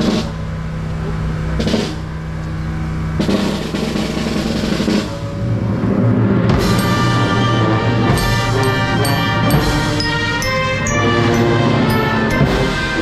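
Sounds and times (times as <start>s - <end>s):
low sustained notes: 0.0s - 13.0s
drum strokes: 1.5s - 2.2s, 3.2s - 13.0s
snare drum roll: 1.6s - 2.1s, 3.2s - 5.3s, 6.4s - 10.3s, 11.6s - 13.0s
band with brass playing: 3.2s - 13.0s.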